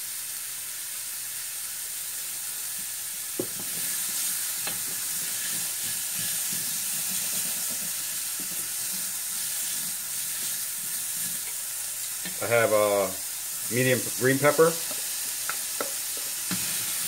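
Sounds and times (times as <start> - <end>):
vegetables sizzling in hot oil: 0.0 - 17.0
spoon knocking on pan: 3.4 - 3.9, 14.8 - 16.6.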